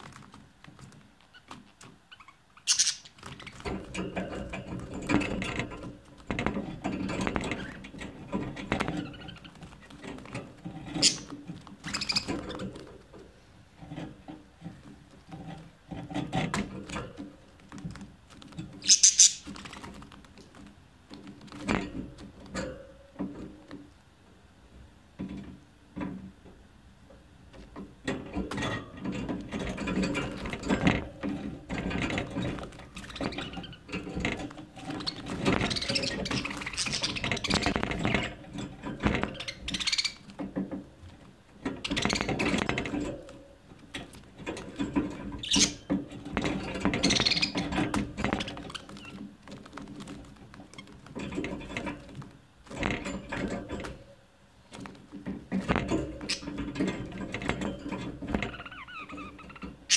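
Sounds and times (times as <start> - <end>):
budgerigars chattering and chirping: 2.2 - 3.2, 11.0 - 11.3, 18.8 - 19.5, 34.9 - 37.8, 39.4 - 40.2, 47.0 - 47.6.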